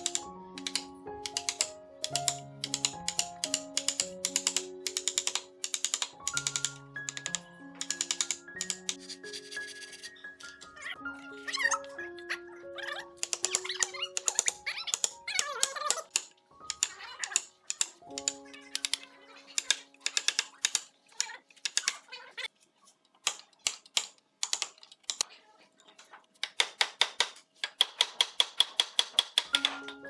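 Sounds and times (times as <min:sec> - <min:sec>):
background music with held notes: 0:00.0 - 0:21.0, 0:29.4 - 0:30.0.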